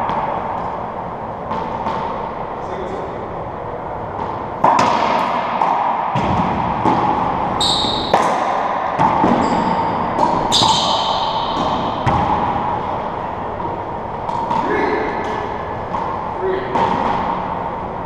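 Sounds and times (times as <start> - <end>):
racquetball hits echoing: 0.0 - 18.0
sneakers squeaking on floor: 6.2 - 8.3, 9.0 - 17.9.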